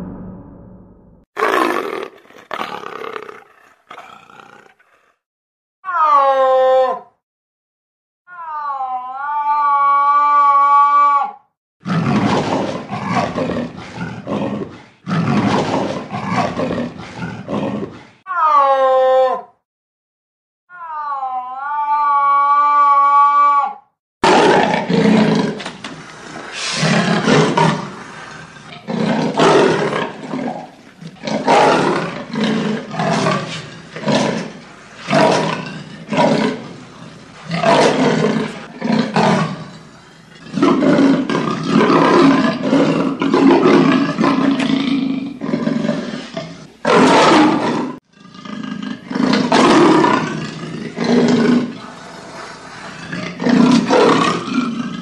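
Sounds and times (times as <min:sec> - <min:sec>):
leopard roaring: 0:01.4 - 0:05.2, 0:11.8 - 0:18.2, 0:24.2 - 0:55.0.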